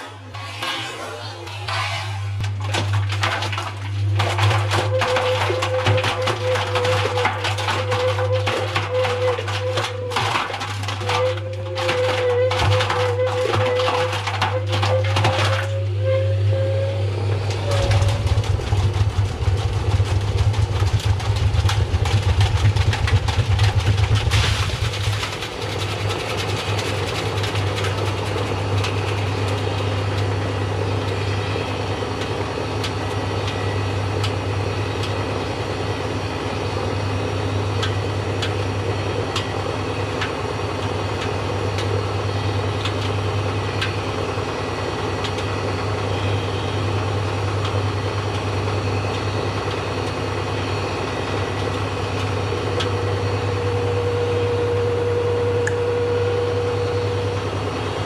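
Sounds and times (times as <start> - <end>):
washing machine motor hum: 0.0 - 58.0
steady whine: 52.9 - 58.0.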